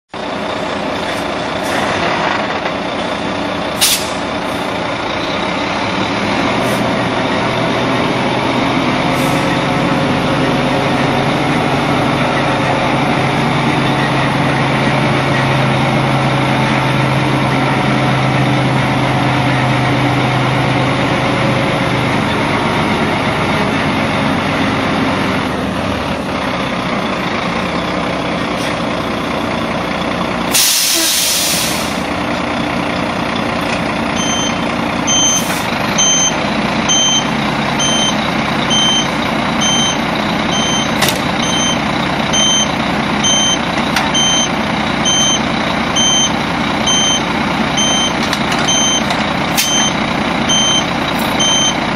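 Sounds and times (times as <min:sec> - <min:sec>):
diesel truck engine running: 0:00.1 - 0:51.9
air brake hisses: 0:03.8 - 0:04.2, 0:30.5 - 0:32.1.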